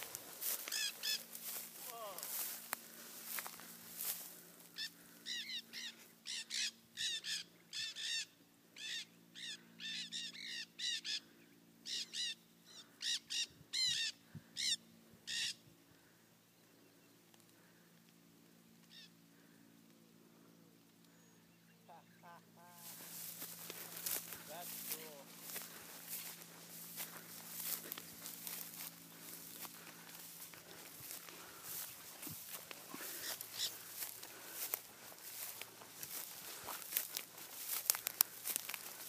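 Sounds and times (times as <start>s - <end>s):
parrots squawking: 0.6s - 1.3s, 4.8s - 11.2s, 32.9s - 34.3s.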